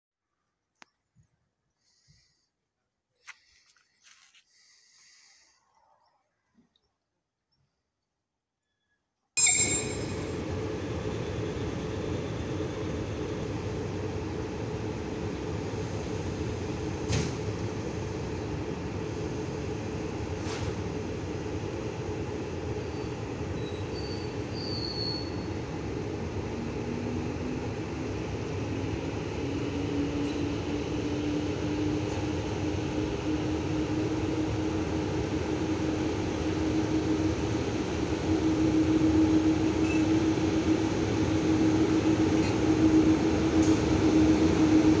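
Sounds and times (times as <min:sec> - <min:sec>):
train running mechanical noise: 0:09.4 - 0:45.0.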